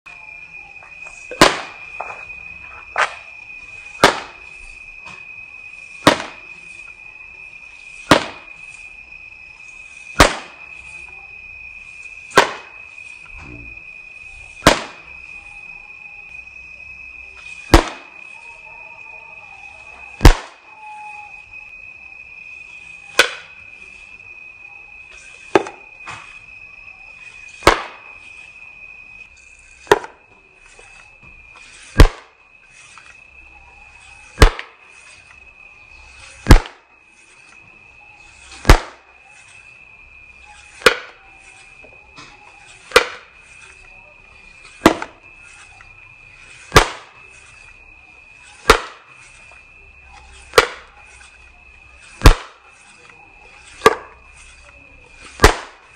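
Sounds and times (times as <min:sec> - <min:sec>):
pop gun firing: 0:01.3 - 0:01.8, 0:04.0 - 0:04.3, 0:06.0 - 0:06.4, 0:08.1 - 0:08.4, 0:10.2 - 0:10.5, 0:12.4 - 0:12.7, 0:14.6 - 0:15.0, 0:17.7 - 0:18.0, 0:20.2 - 0:20.6, 0:27.6 - 0:28.0, 0:32.0 - 0:32.3, 0:34.4 - 0:34.7, 0:36.4 - 0:36.8, 0:38.6 - 0:39.0, 0:42.9 - 0:43.2, 0:46.7 - 0:47.1, 0:48.7 - 0:49.0, 0:50.6 - 0:50.8, 0:52.2 - 0:52.6, 0:55.4 - 0:55.8.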